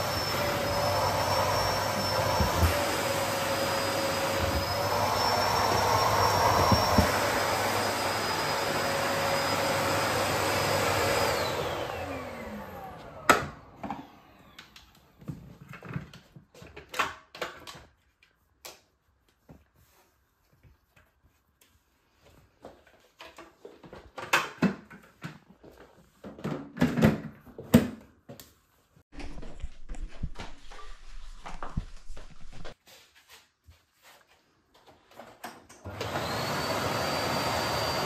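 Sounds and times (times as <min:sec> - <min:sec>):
vacuum cleaner running: 0:00.0 - 0:15.3, 0:35.8 - 0:38.0.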